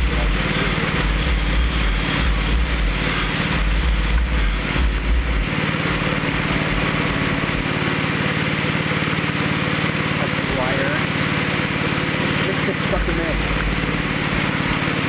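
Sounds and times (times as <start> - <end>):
deep rumble: 0.0 - 8.0
small gasoline engine running: 0.0 - 15.0.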